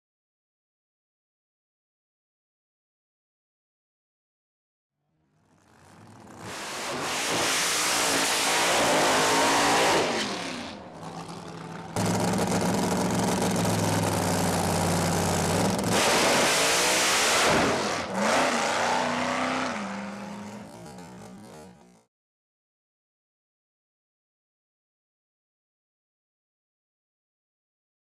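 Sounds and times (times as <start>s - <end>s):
drag car engine revving: 5.3s - 22.1s.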